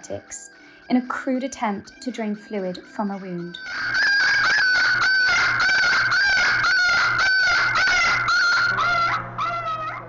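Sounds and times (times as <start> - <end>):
puppy yelping high-pitched cries: 3.6 - 10.0.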